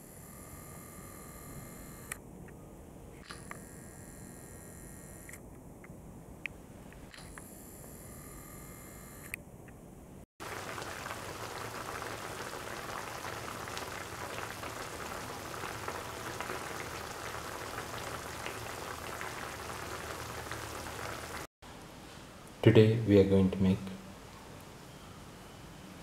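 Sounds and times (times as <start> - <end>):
food sizzling in a pan: 10.4 - 21.5.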